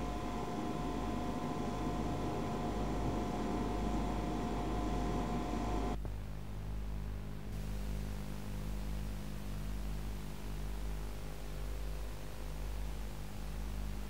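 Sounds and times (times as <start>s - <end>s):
tape hiss: 0.0s - 6.3s
low electrical hum: 0.0s - 14.0s.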